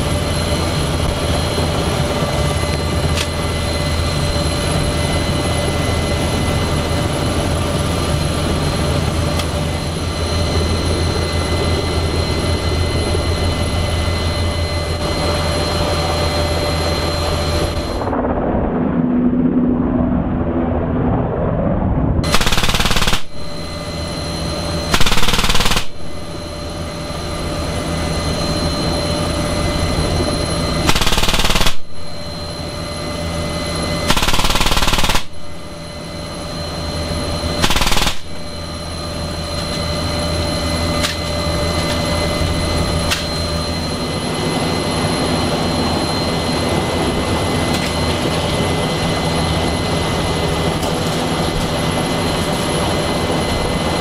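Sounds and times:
helicopter rotor rumble: 0.0 - 54.0
helicopter turbine whine: 0.0 - 54.0
machine gun bursts: 22.3 - 23.4, 24.9 - 26.0, 30.9 - 31.9, 34.1 - 35.3, 37.6 - 38.4.

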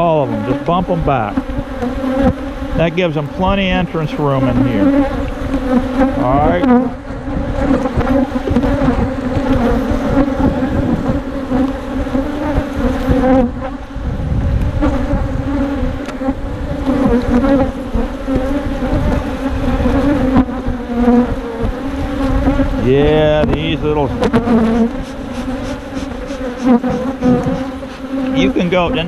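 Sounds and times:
honey bees buzzing: 0.0 - 29.0.

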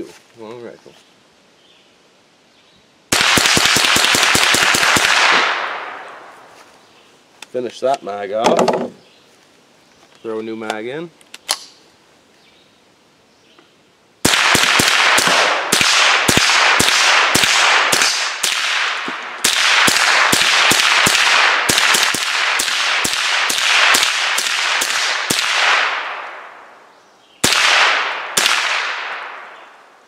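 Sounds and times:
rapid rifle gunshots with echo: 3.1 - 6.1, 14.2 - 26.5, 27.4 - 29.6.

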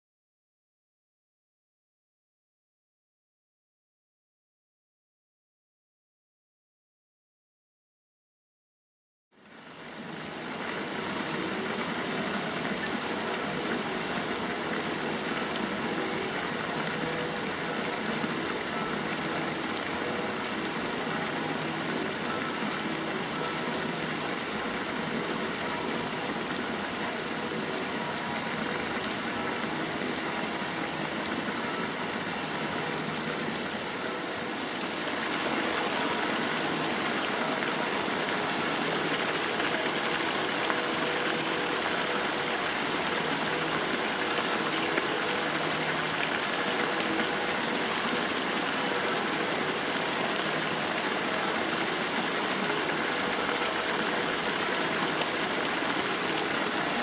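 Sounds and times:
flowing water rushing: 9.4 - 57.0.

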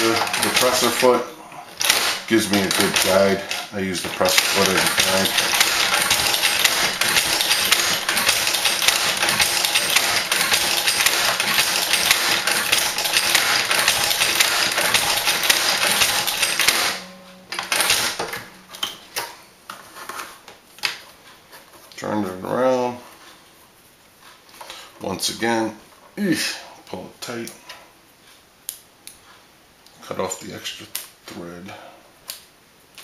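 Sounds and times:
leather stitcher clicking and knocking: 1.8 - 16.9.

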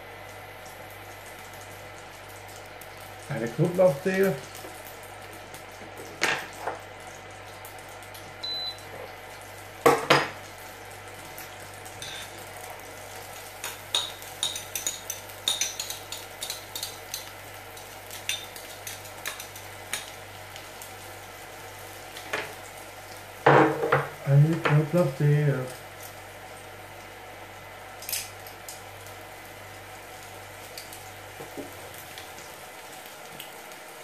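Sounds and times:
utensils and bowl knocking on worktop: 23.5 - 24.8.

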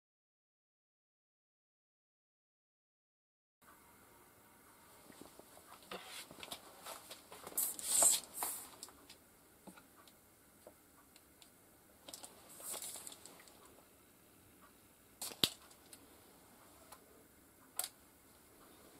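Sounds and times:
tape measure blade scraping: 7.6 - 8.6.

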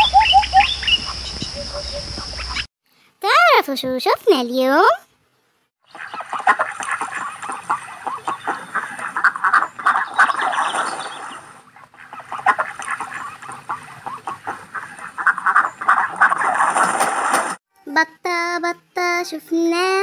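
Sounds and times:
ducks quacking: 0.0 - 2.7, 5.9 - 17.6.

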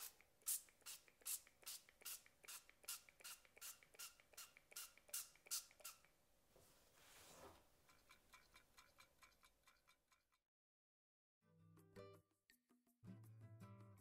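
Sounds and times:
oil pump sprayer spritzing: 0.0 - 6.0
soft music: 11.5 - 14.0.

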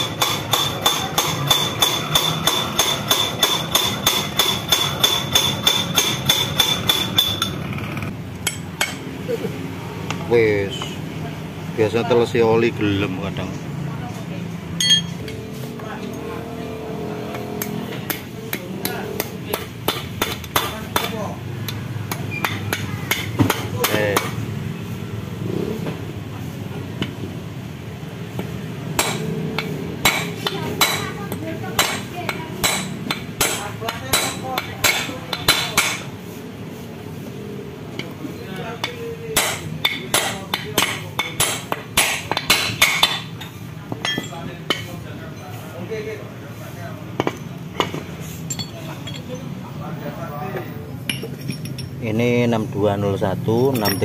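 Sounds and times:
hammer tapping metal: 0.0 - 9.1, 14.8 - 15.4, 17.3 - 24.5, 28.4 - 36.1, 38.8 - 45.0.

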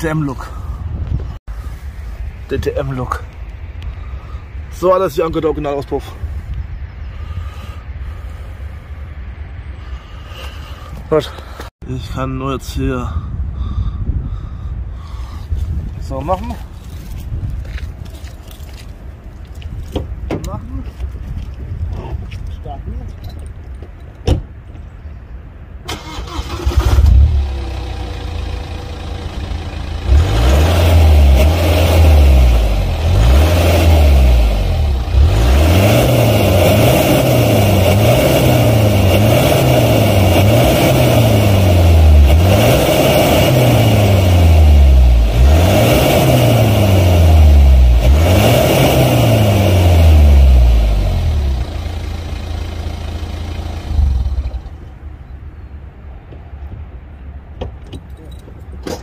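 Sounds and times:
diesel engine revving and idling: 25.9 - 55.0.

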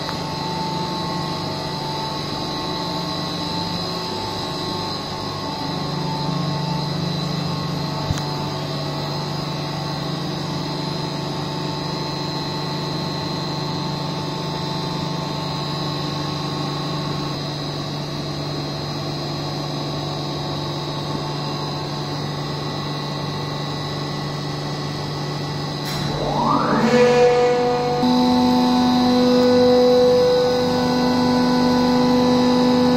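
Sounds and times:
water pumps humming: 20.7 - 32.9
thin high whine: 25.6 - 32.9.

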